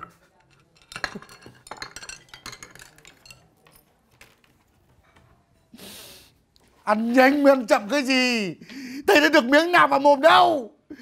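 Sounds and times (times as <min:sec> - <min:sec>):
crockery and utensils clinking: 0:00.0 - 0:05.7.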